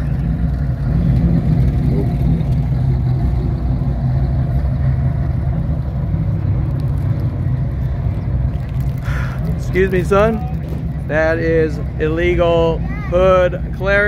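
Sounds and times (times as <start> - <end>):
car engine idling: 0.0 - 14.0.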